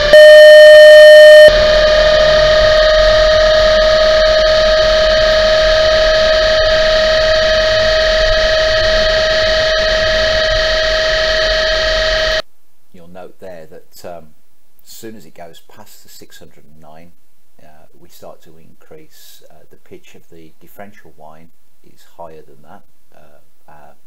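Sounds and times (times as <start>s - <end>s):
differential whine rising: 0.0s - 12.4s
pure sine test tone: 0.0s - 12.5s.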